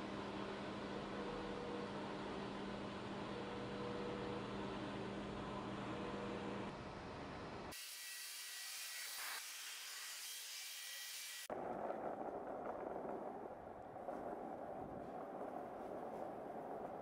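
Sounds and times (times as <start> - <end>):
steady hum: 0.0 - 7.7.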